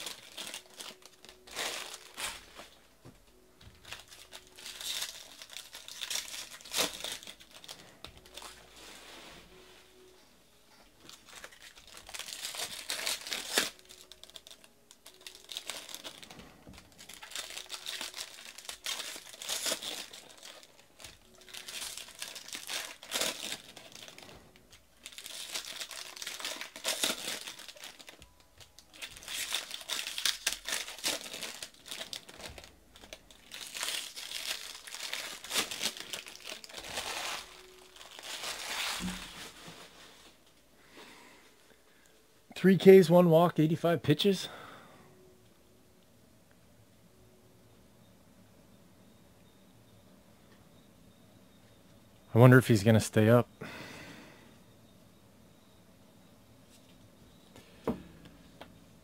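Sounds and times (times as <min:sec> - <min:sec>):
foil wrappers crinkling and tearing: 0:00.0 - 0:09.0, 0:11.0 - 0:40.4.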